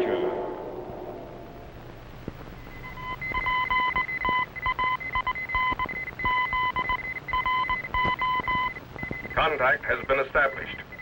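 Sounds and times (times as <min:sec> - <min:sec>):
morse code beeps: 0:02.5 - 0:10.2.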